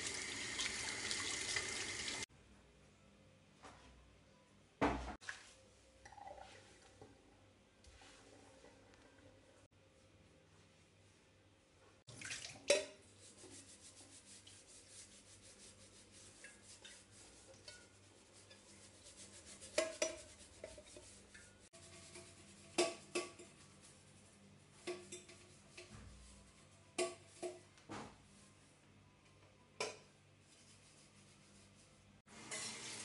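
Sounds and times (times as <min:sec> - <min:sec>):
sponge scrubbing kettle: 0:13.1 - 0:24.2.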